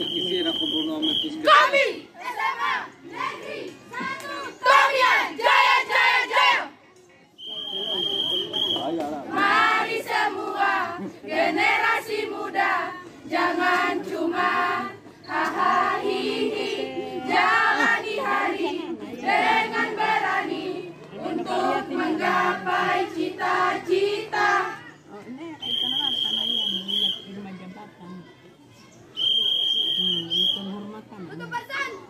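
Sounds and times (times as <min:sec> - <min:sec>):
women singing in unison: 0:09.3 - 0:24.8.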